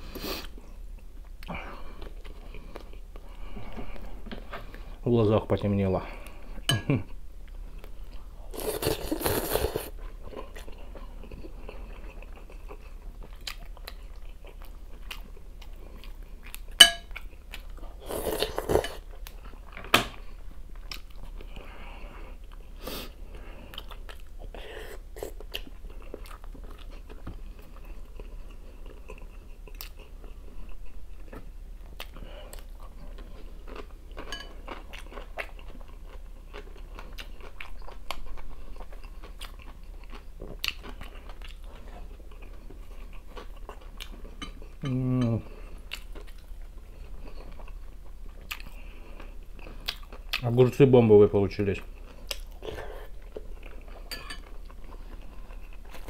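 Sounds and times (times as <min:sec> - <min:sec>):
chewing and crunching: 0:07.4 - 0:50.9, 0:51.8 - 0:56.0
cutlery clicking on glass bowl: 0:16.8 - 0:17.1.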